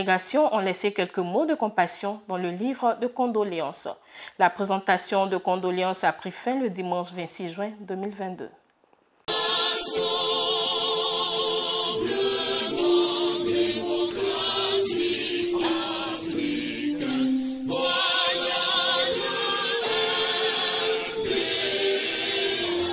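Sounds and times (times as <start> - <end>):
choir singing held notes: 9.3 - 22.9.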